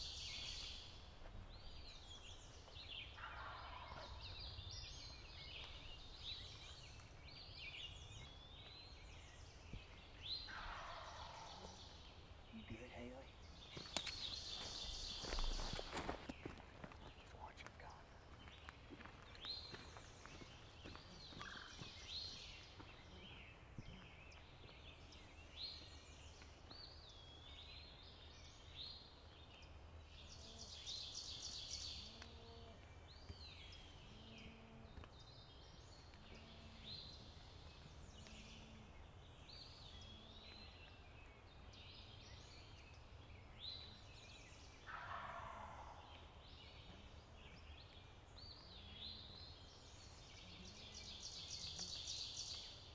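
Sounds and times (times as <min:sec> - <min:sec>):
faint songbirds singing: 0:00.0 - 0:52.9
turkey gobbling: 0:03.2 - 0:04.2, 0:10.5 - 0:11.5, 0:44.9 - 0:46.0.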